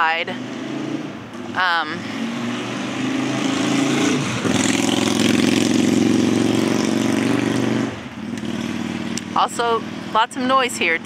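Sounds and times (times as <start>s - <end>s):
vehicle engine driving past: 0.2s - 10.2s.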